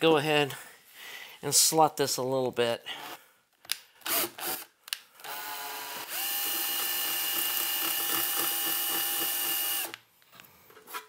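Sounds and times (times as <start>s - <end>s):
cordless drill cutting metal: 4.1s - 10.0s.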